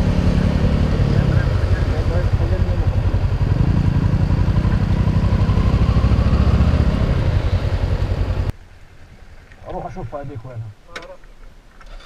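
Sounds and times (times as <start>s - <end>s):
motorcycle engine running: 0.0s - 8.5s.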